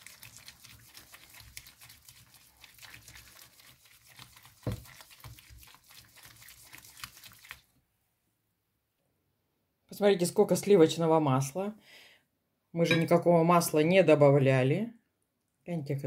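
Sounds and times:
spatula stirring thick porridge: 0:00.0 - 0:07.6.

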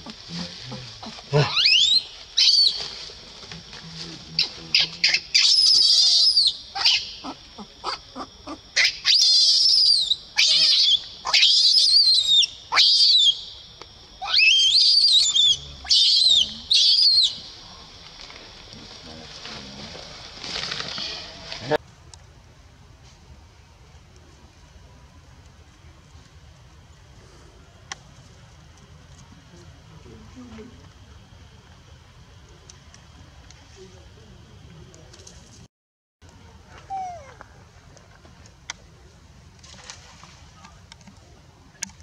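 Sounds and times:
baby monkey screaming: 0:01.4 - 0:02.8, 0:04.8 - 0:13.4, 0:14.2 - 0:17.5, 0:36.9 - 0:37.3.

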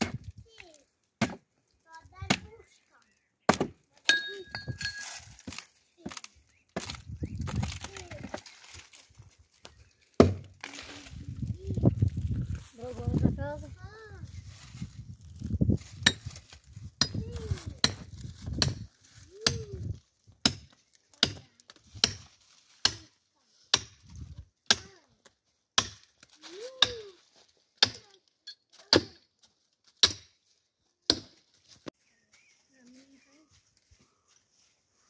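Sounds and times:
axe chopping firewood: 0:00.0 - 0:00.3, 0:01.2 - 0:01.5, 0:02.2 - 0:02.6, 0:03.5 - 0:08.4, 0:10.2 - 0:10.6, 0:16.0 - 0:16.4, 0:17.0 - 0:19.8, 0:20.4 - 0:23.1, 0:23.7 - 0:25.0, 0:25.8 - 0:27.1, 0:27.8 - 0:28.1, 0:28.7 - 0:29.2, 0:29.9 - 0:30.4, 0:31.1 - 0:31.4.

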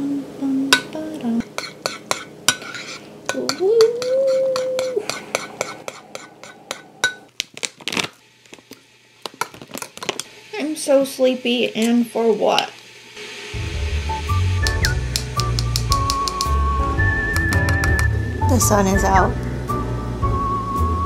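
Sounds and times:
person humming: 0:00.0 - 0:01.5, 0:03.4 - 0:05.9.

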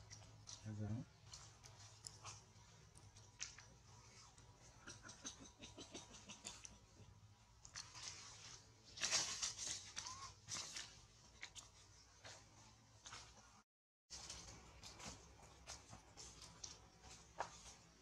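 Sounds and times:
twigs crackling: 0:07.6 - 0:11.8
leaves rustling: 0:07.6 - 0:12.4.

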